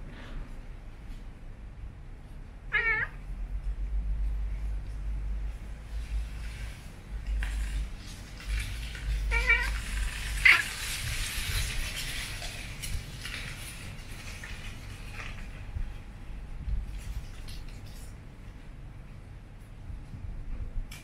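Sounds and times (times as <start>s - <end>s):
cat meowing: 2.7s - 3.2s, 9.2s - 10.8s
rustling from scuffle: 5.8s - 15.7s.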